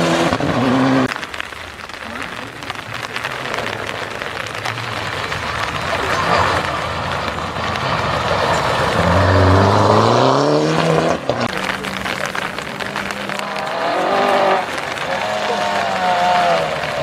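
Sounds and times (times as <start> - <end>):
approaching rally car engine: 5.0 - 17.0
rally car accelerating past: 7.6 - 17.0.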